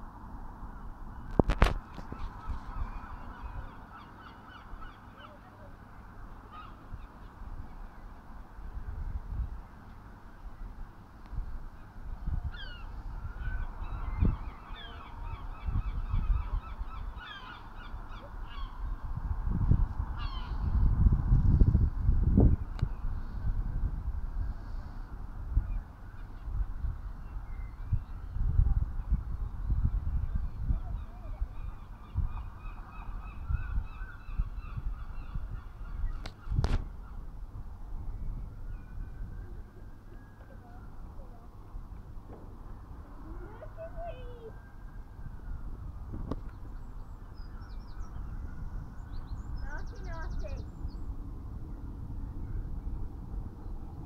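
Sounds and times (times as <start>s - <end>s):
wind buffeting microphone: 0.0s - 54.0s
birds chirping: 1.8s - 8.2s, 12.5s - 19.0s, 38.0s - 54.0s.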